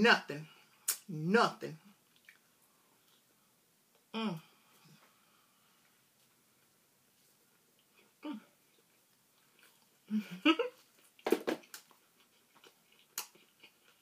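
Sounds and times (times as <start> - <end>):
mouth smacks or crunches: 0.8 - 1.1, 2.1 - 2.5, 10.7 - 14.0
person humming: 4.2 - 4.6, 8.2 - 8.6
person chewing chips: 7.3 - 10.1, 10.7 - 14.0.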